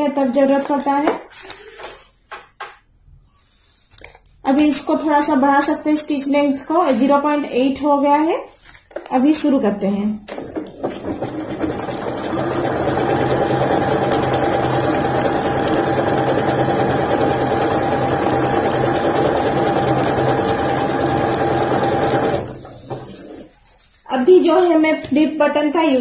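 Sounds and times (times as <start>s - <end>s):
sewing machine stitching: 10.3s - 23.5s.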